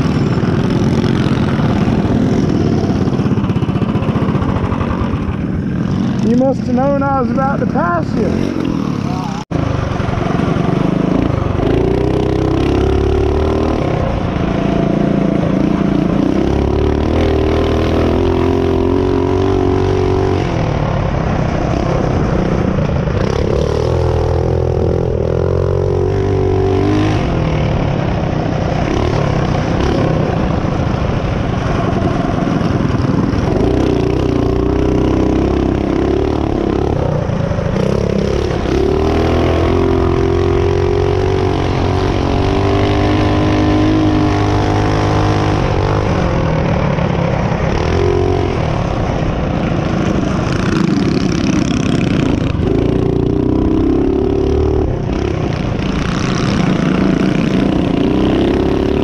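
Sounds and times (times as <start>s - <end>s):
small motorbike engine revving: 32.0s - 59.0s.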